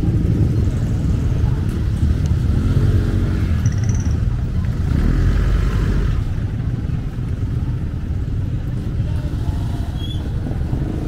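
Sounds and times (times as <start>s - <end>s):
motorcycle engines running: 0.0s - 11.0s
faint voices: 4.1s - 11.0s.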